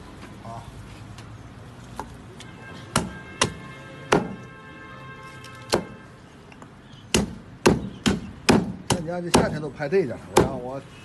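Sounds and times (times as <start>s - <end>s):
cleaver chopping on wooden block: 2.9s - 4.4s, 7.1s - 10.7s.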